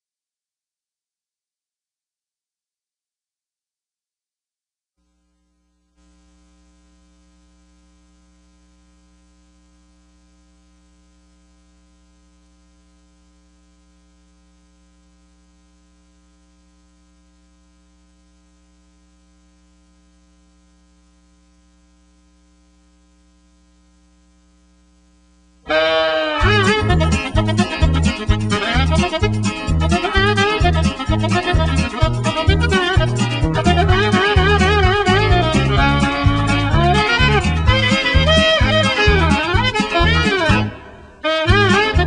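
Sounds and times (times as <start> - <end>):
buzzy electrical hum: 5.0 - 42.0
loud music: 25.7 - 42.0.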